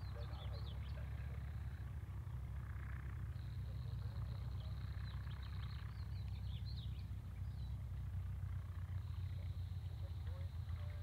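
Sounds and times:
birds chirping: 0:00.0 - 0:11.0
light aircraft engine drone: 0:00.0 - 0:11.0.

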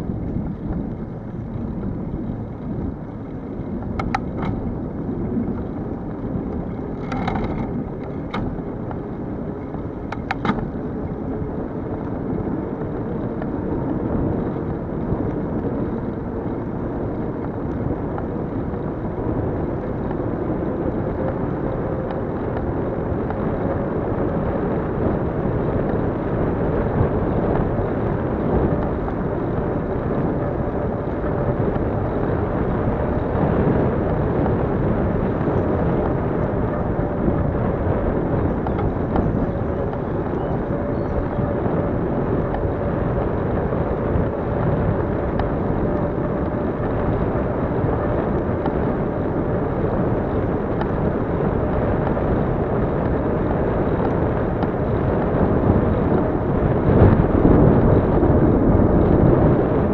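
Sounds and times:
wind noise on microphone: 0:00.0 - 0:59.9.

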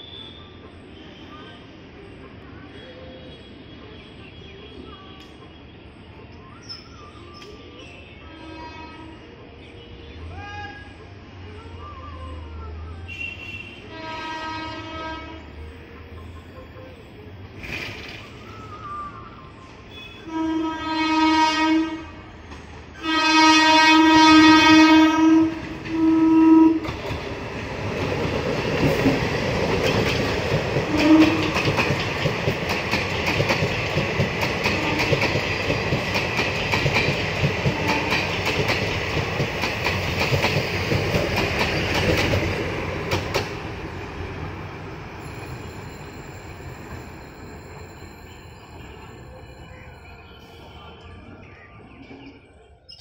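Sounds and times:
train horn blasts: 0:13.1 - 0:15.5, 0:19.9 - 0:27.0, 0:30.8 - 0:31.6, 0:34.7 - 0:35.3, 0:37.6 - 0:38.4.

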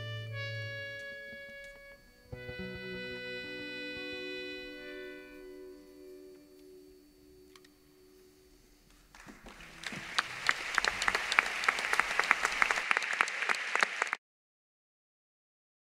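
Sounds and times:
audience applauding: 0:09.1 - 0:14.2.

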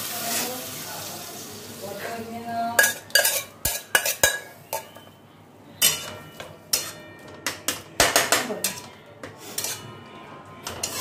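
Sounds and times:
metal cookware clanking: 0:02.7 - 0:05.1, 0:05.7 - 0:11.0.

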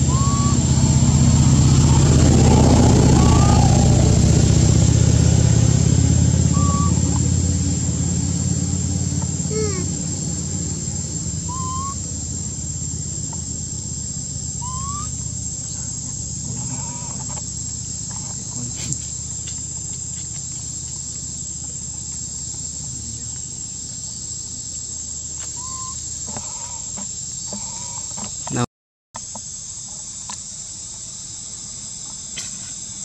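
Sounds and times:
bird-like whistled calls: 0:00.0 - 0:04.3, 0:06.5 - 0:07.3, 0:11.4 - 0:12.1, 0:14.6 - 0:15.2, 0:25.5 - 0:26.0
low rumble: 0:00.0 - 0:16.6
high-pitched whine: 0:00.0 - 0:18.9.

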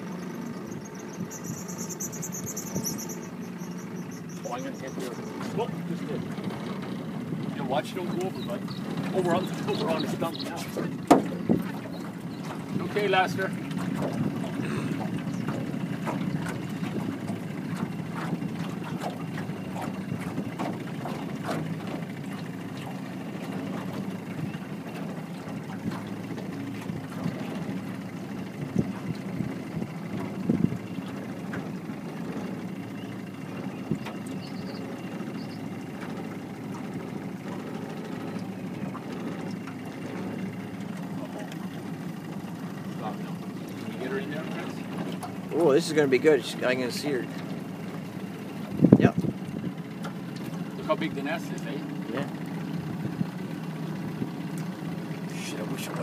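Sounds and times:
boat motor humming: 0:00.0 - 0:56.0
sharp knocks: 0:11.1 - 0:11.5.

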